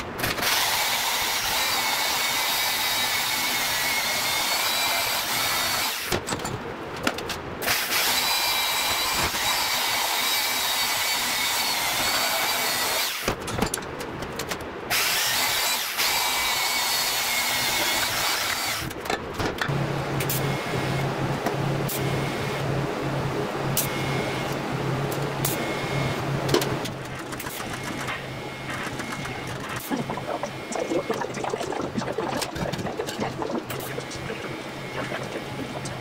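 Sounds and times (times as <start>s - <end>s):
power tool cutting metal: 0.2s - 6.1s, 7.6s - 13.3s, 14.9s - 18.9s.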